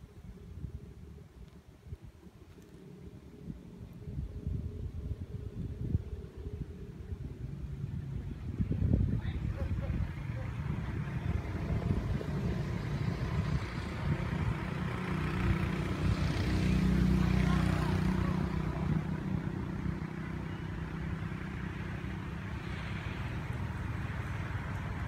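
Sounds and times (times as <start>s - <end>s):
traffic drone: 0.0s - 25.0s
vehicle engine rumble passing by: 2.8s - 25.0s.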